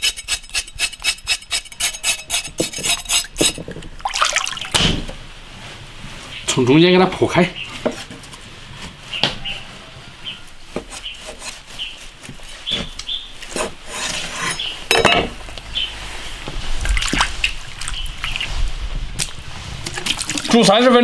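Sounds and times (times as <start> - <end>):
cleaver cutting meat: 0.0 - 3.6
water splashing and sloshing: 2.6 - 6.2, 15.4 - 20.8.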